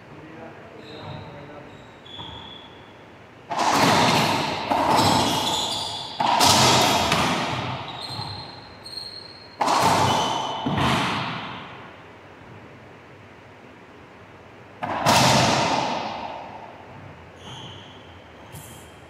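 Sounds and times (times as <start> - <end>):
shoes squeaking on wood floor: 0.7 - 3.0, 3.9 - 10.8, 16.8 - 19.0
racquetball hits echoing: 3.4 - 12.0, 14.8 - 18.9.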